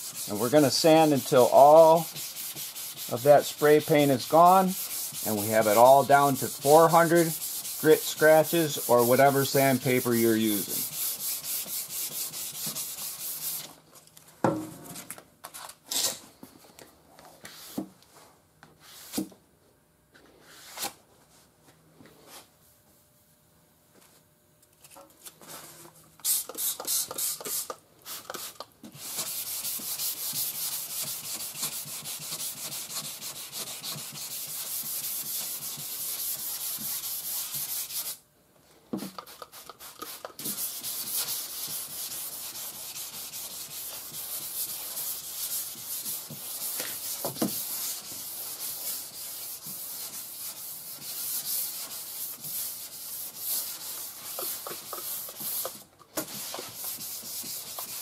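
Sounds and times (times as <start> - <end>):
sandpaper rasping on metal panel: 0.0 - 13.7, 28.4 - 38.2, 39.2 - 58.0.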